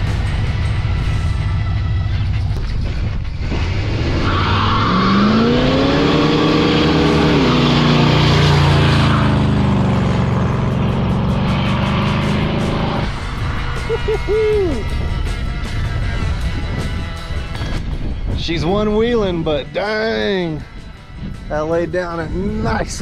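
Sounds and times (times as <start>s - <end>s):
car engine revving: 0.0s - 17.8s
tire squealing on asphalt: 1.1s - 15.8s.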